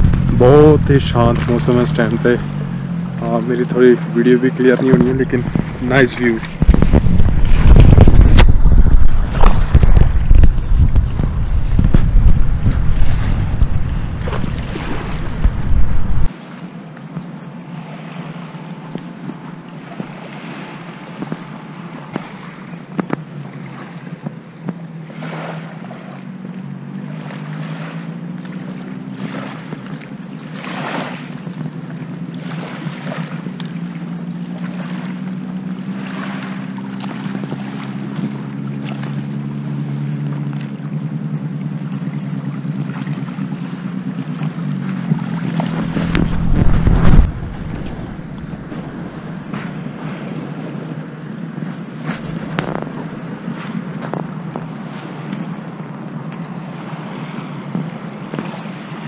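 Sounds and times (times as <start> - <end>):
wind buffeting microphone: 0.0 - 16.3, 43.2 - 59.0
distant engine droning: 0.0 - 59.0.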